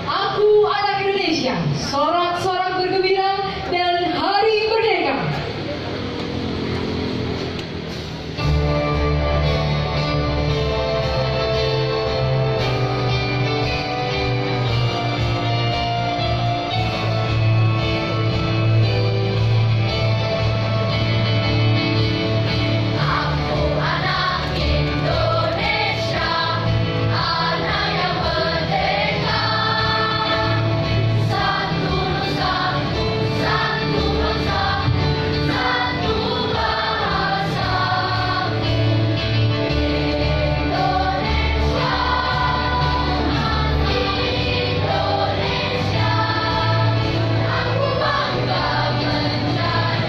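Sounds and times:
instrumental accompaniment: 7.6s - 50.0s
children's choir singing: 22.3s - 50.0s.

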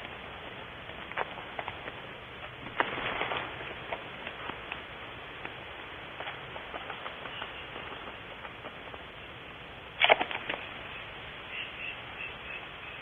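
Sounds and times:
owlet rustling and flapping: 0.0s - 9.2s
steady hiss: 0.0s - 13.0s.

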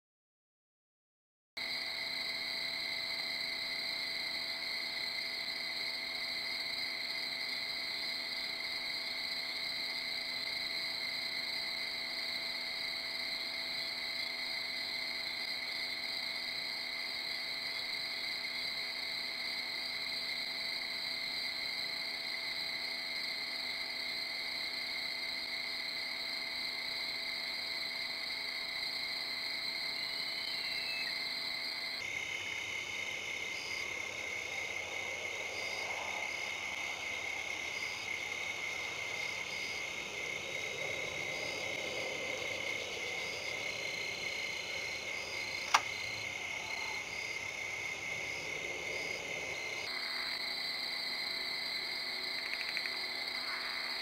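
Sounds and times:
insects singing: 1.6s - 54.0s.

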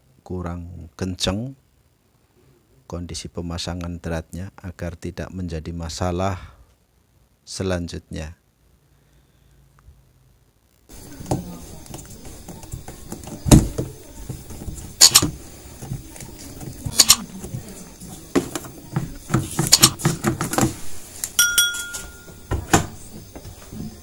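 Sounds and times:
plastic rubbing: 10.9s - 21.4s
short steady beep: 21.4s - 22.4s.

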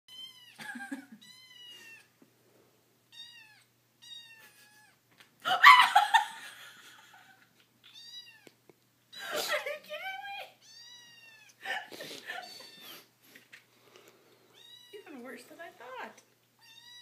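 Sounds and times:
kitten meowing: 3.1s - 5.0s, 7.9s - 8.5s, 10.6s - 11.6s, 14.5s - 15.0s, 16.6s - 17.0s.

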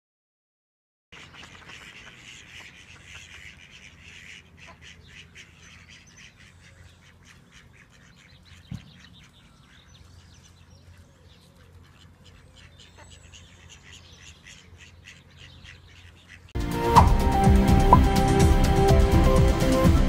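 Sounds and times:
bird calls: 1.2s - 17.2s
ducks quacking: 1.2s - 17.2s
sharp thump: 17.0s - 17.3s.

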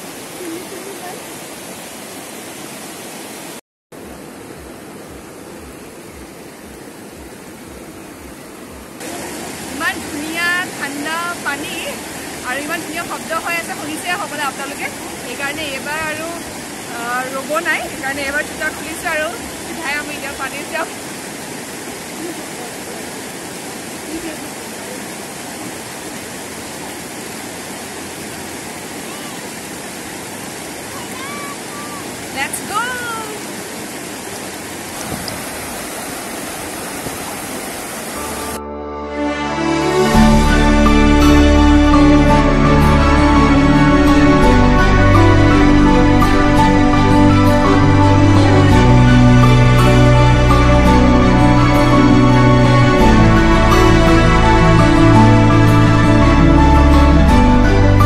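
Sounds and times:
river rushing over rocks: 0.0s - 38.6s.

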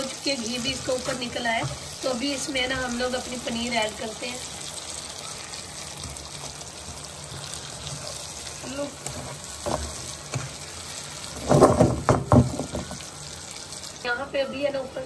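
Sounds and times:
gravy sizzling in a pan: 0.0s - 15.0s
spatula scraping and knocking pan: 0.5s - 3.2s, 6.0s - 13.1s.

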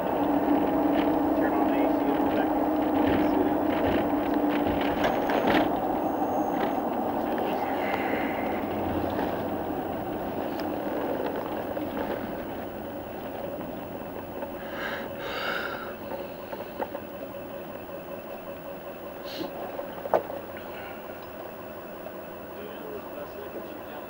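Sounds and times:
faint steady hum: 0.0s - 24.0s
vehicle cabin rumble: 0.0s - 24.0s
short hisses: 19.2s - 19.5s.

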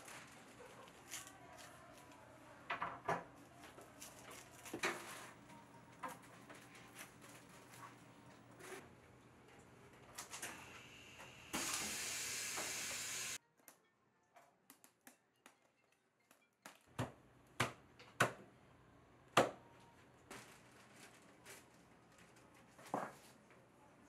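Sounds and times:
steady hiss: 11.2s - 13.4s.

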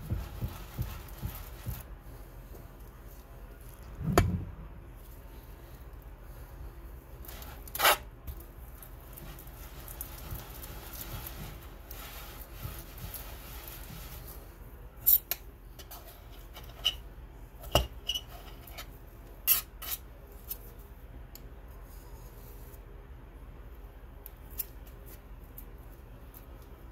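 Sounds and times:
glass muller rubbing on plate: 0.0s - 1.8s, 9.2s - 14.4s.

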